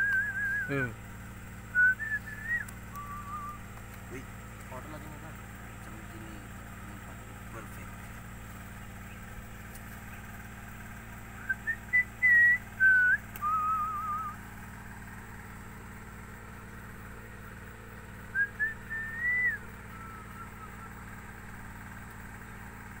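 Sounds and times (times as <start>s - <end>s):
person whistling a tune: 0.0s - 0.8s, 1.7s - 3.6s, 11.4s - 14.4s, 18.3s - 20.9s
low background hum: 0.0s - 23.0s.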